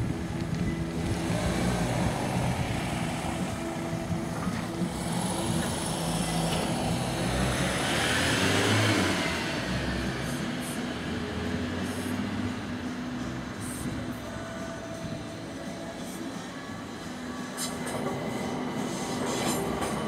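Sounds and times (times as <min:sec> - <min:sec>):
van driving past: 0:00.0 - 0:15.2
road traffic noise: 0:00.0 - 0:20.0.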